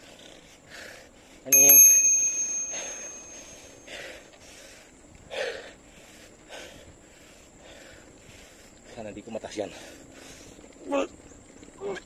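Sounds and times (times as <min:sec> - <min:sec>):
cyclist breathy huffs: 0:00.0 - 0:01.6, 0:02.4 - 0:10.8
bicycle bell ringing: 0:01.5 - 0:03.9.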